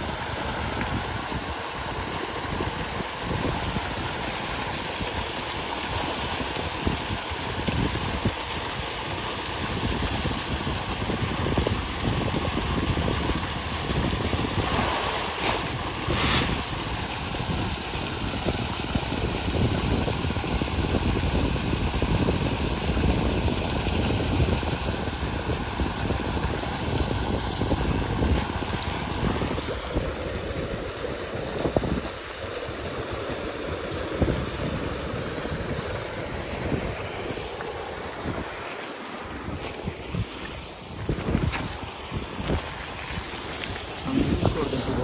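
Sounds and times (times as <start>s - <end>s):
water pouring into pond: 0.0s - 45.0s
loud splash: 13.8s - 20.4s
fish splashing while feeding: 14.4s - 19.6s.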